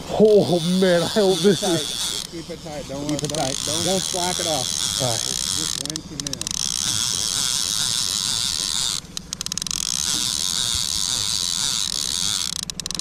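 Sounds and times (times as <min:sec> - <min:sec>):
fishing reel whirring: 0:00.0 - 0:13.0
clicks: 0:09.1 - 0:10.2.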